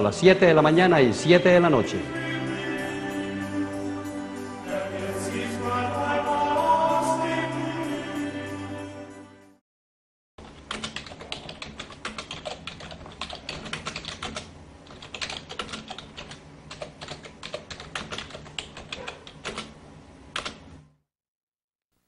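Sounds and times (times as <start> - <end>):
computer keyboard typing: 10.4 - 20.6.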